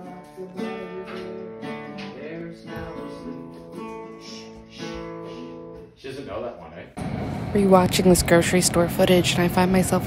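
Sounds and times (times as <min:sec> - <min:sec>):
acoustic guitar strummed chords: 0:00.0 - 0:06.0.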